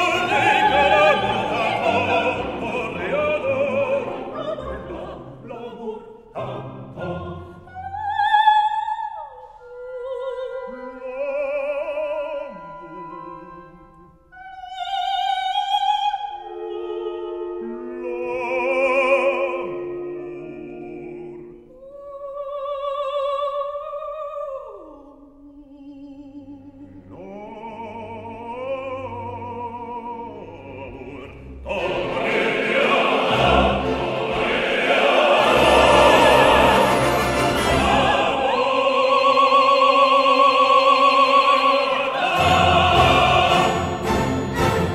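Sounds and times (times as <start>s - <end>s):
orchestra playing: 0.0s - 5.7s, 31.0s - 40.0s, 41.0s - 44.9s
choir voices: 0.0s - 8.4s, 27.1s - 44.9s
operatic voice with vibrato: 27.1s - 44.9s.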